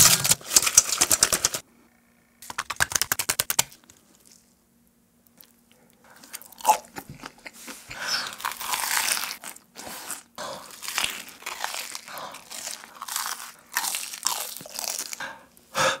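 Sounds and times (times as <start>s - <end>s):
crunchy chewing: 5.2s - 15.6s
crispy food crunching bite: 5.3s - 7.4s, 8.1s - 15.2s.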